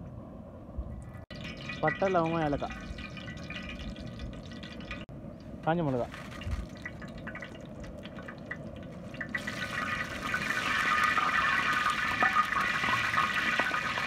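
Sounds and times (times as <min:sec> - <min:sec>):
spices sizzling in hot oil: 0:09.1 - 0:14.0.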